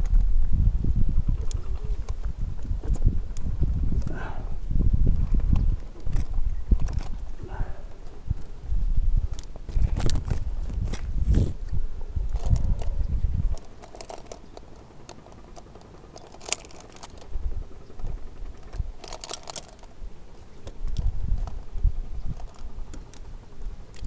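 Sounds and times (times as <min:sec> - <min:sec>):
carabiners clinking: 0:06.1 - 0:07.9, 0:12.2 - 0:23.3.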